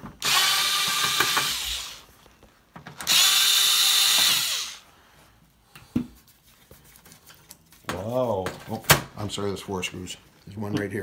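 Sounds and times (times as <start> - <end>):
cordless drill driving screws: 0.2 - 2.0, 3.0 - 4.8.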